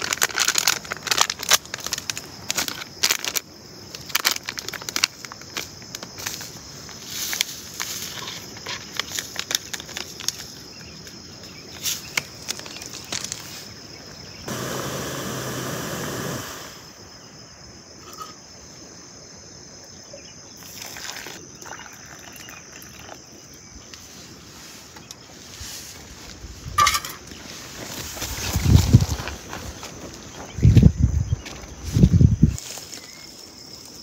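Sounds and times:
coffee sachet crinkling: 0.0 - 6.6, 8.1 - 10.7, 11.8 - 13.5
high insect chirr: 0.0 - 34.0
loud rushing hiss: 14.4 - 17.1.

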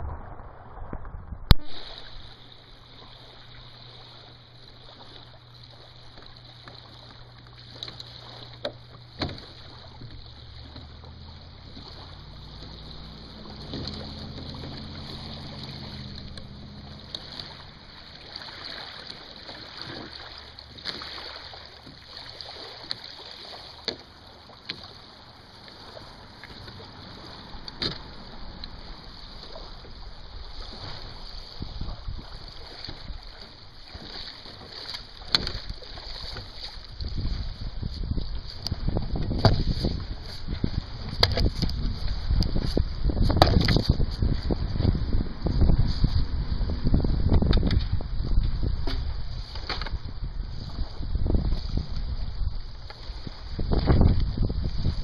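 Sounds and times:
lake water washing at shore: 0.0 - 55.0
low steady hum: 0.0 - 55.0
wind: 0.0 - 55.0
knocks on boat: 8.6 - 11.0, 27.7 - 28.1, 35.2 - 35.7, 38.8 - 45.0, 47.2 - 50.0.

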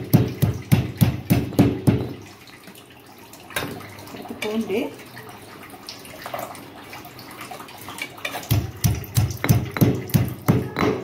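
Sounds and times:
stone pestle pounding in mortar: 0.0 - 2.1, 8.5 - 11.0.

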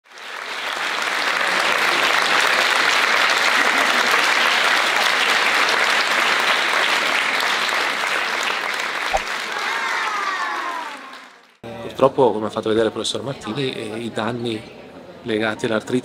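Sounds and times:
audience applause: 0.1 - 11.6.

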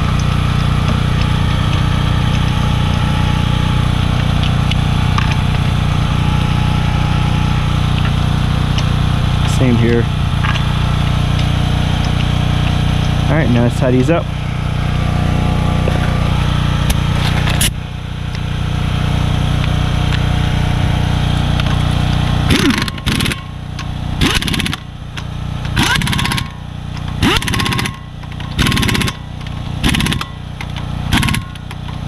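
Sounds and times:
steady machine hum: 0.0 - 32.0
impact wrench bursts: 22.4 - 32.0.

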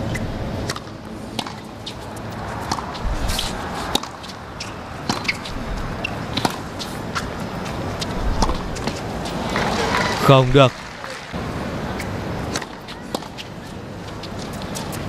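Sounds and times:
tennis ball bouncing on court: 0.1 - 10.1, 12.0 - 13.5
murmur of stadium crowd: 0.9 - 15.0.

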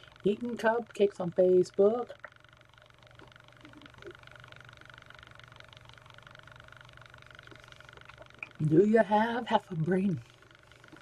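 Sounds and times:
low electrical hum with whine: 0.0 - 11.0
soft small sounds: 2.0 - 8.8.

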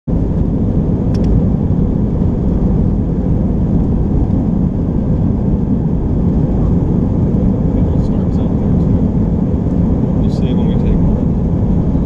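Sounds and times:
airliner cabin engine rumble: 0.1 - 12.0.

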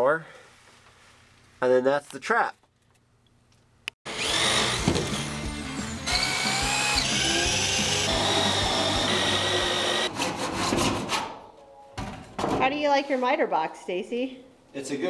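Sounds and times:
drill boring through wood: 4.1 - 10.1
rock music: 4.1 - 10.1.

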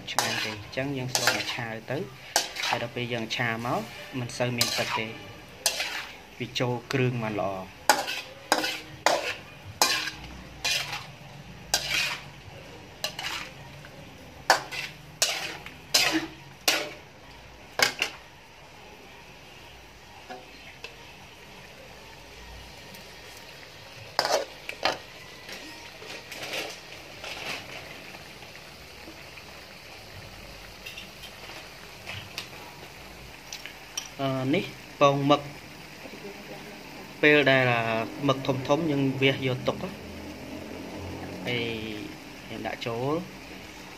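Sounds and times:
metal spatula scraping a wok: 0.0 - 18.2, 24.0 - 28.4
faint steady sizzle: 0.0 - 43.9.

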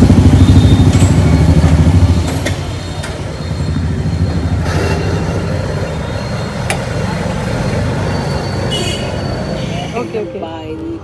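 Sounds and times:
vehicle engine running: 0.0 - 8.9.

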